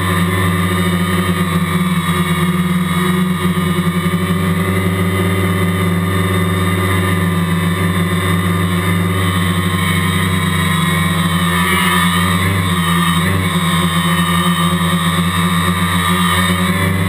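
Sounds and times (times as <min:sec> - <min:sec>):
quadcopter motors humming: 0:00.0 - 0:17.0.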